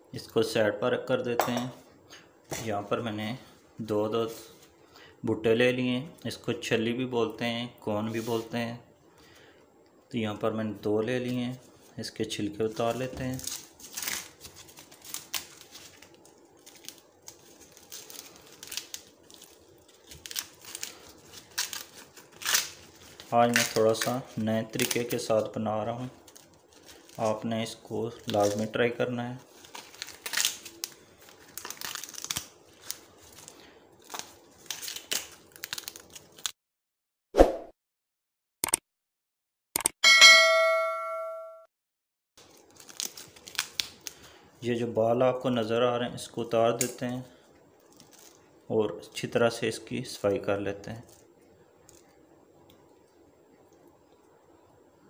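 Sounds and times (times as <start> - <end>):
corn husks rustling and ripping: 12.8 - 36.6, 42.4 - 44.4, 47.8 - 48.6
bright bell ding: 40.0 - 41.7.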